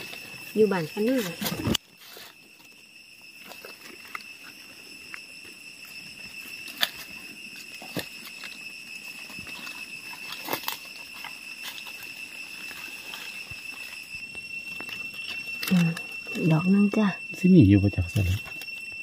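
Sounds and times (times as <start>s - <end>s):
high insect drone: 0.0s - 19.0s
twigs snapping: 9.6s - 11.9s.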